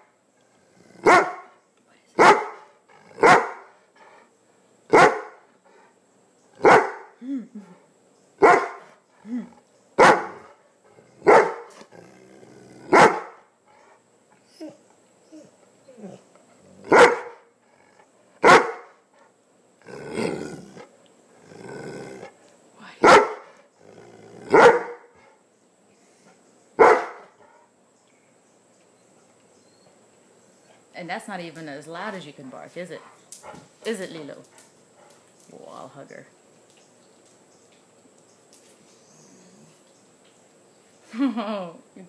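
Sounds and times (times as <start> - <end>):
dog barking deeply: 1.0 - 1.5, 2.2 - 3.7, 4.9 - 5.4, 6.6 - 7.2, 8.4 - 8.9, 10.0 - 10.5, 11.2 - 11.8, 12.8 - 13.5, 16.8 - 17.5, 18.4 - 19.0, 23.0 - 23.5, 24.5 - 25.2, 26.8 - 27.3.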